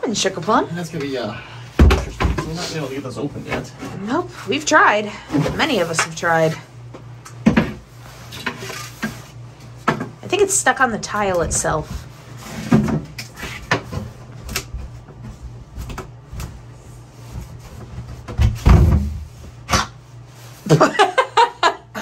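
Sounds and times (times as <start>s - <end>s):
heavy thump on wood panel: 18.3s - 19.3s.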